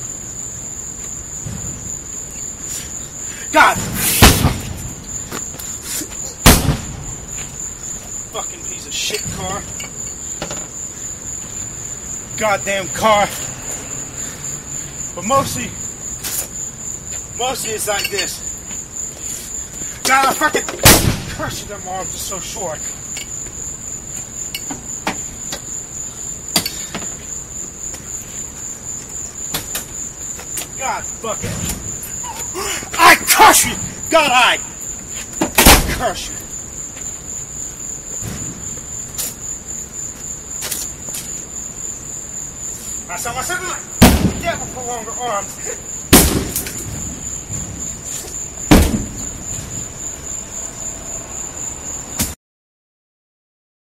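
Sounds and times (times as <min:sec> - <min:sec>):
axe striking car body: 0:48.7 - 0:49.2.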